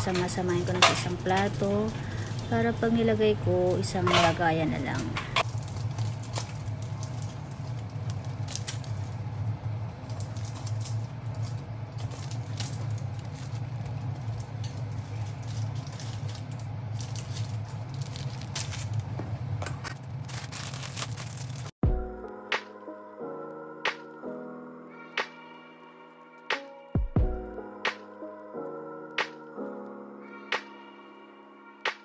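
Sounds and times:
plastic packaging crinkling: 0.0 - 21.8.

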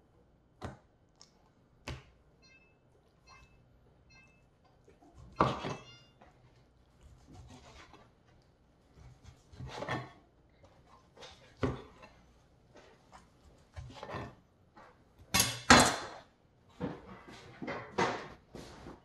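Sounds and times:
knife sawing on cutting board: 7.2 - 8.0.

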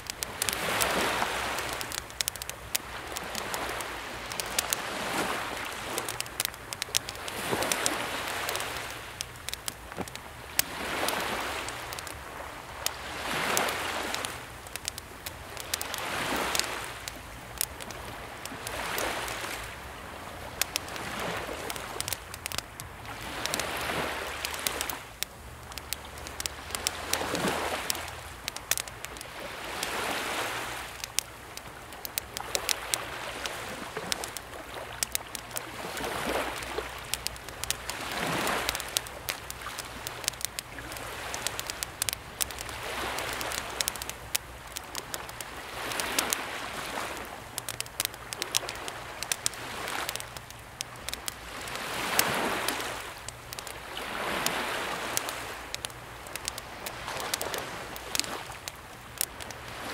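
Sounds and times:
campfire crackling and popping: 0.0 - 59.9
sea waves washing: 0.0 - 59.9.

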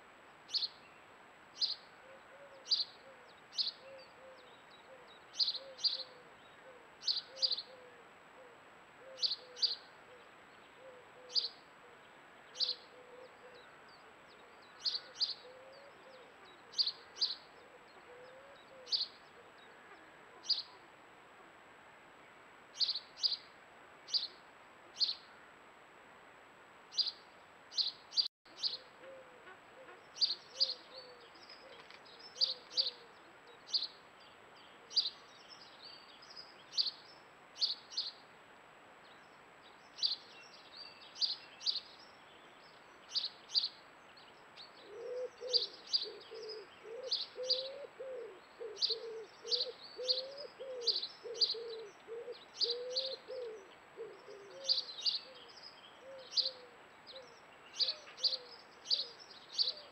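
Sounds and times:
lower wavering bird calls: 1.6 - 21.0, 26.9 - 34.0, 44.6 - 59.9.

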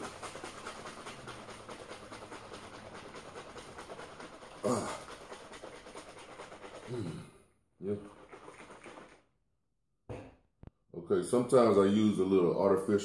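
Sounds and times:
liquid sloshing in shaker cup: 0.0 - 7.2, 7.9 - 9.2.

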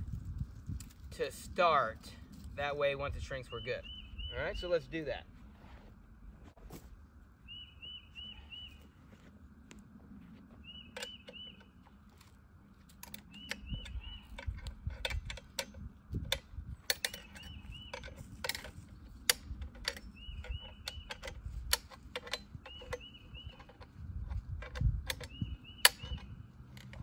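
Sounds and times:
bird chirping: 3.2 - 5.2, 7.4 - 9.2, 10.5 - 12.2, 13.0 - 15.0, 16.9 - 24.4, 25.1 - 26.6
metal clicks and ratcheting: 12.9 - 27.0.

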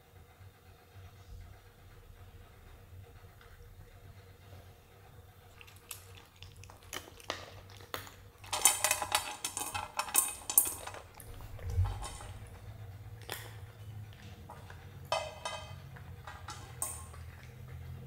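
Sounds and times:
cat chewing: 5.5 - 8.5, 15.9 - 18.0
food clinking on metal bowl: 8.4 - 12.6, 14.5 - 17.6.

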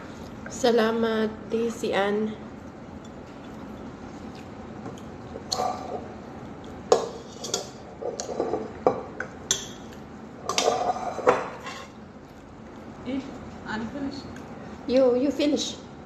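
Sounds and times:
tableware clinking on a plate: 10.5 - 12.0.

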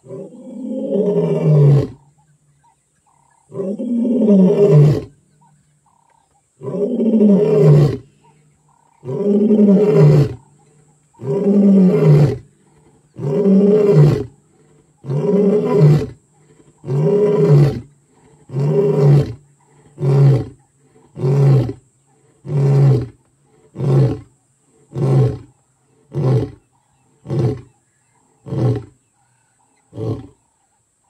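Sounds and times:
lion roaring: 13.2 - 24.3.

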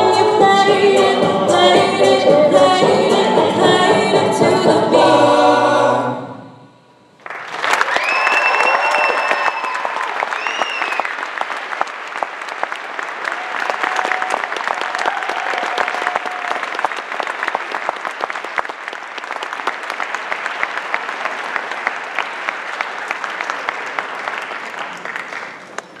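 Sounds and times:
audience applauding: 7.2 - 26.0.

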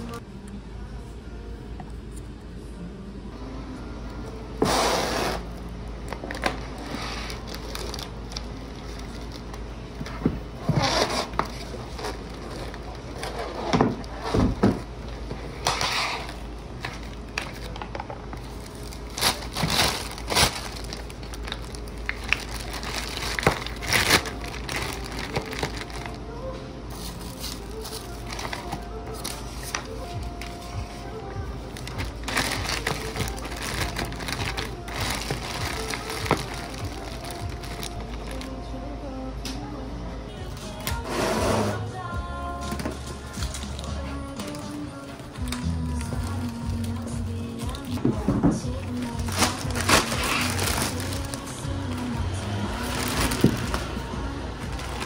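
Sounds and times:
plastic bag rustling: 5.4 - 38.6, 43.2 - 55.0
cling film crinkling: 6.0 - 9.7, 16.2 - 31.0, 31.6 - 38.6, 43.3 - 48.0, 48.9 - 55.0.

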